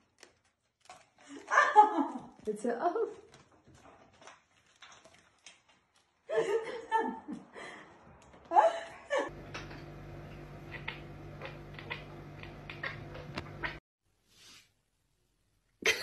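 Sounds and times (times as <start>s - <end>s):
person laughing: 6.3s - 9.3s
steady low hum: 9.1s - 13.8s.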